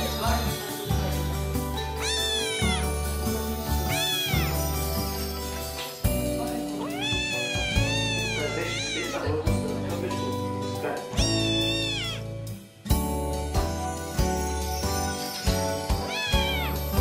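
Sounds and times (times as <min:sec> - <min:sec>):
background music: 0:00.0 - 0:17.0
kitten meowing: 0:02.0 - 0:03.2, 0:03.8 - 0:05.2, 0:06.8 - 0:09.5, 0:11.2 - 0:12.3, 0:16.0 - 0:17.0.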